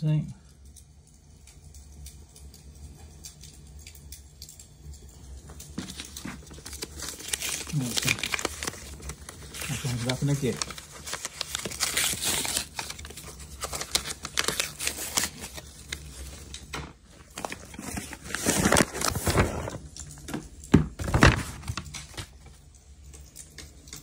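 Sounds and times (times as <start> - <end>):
cardboard box rustling: 5.8 - 8.9, 9.5 - 15.6, 17.3 - 19.8, 20.8 - 22.2.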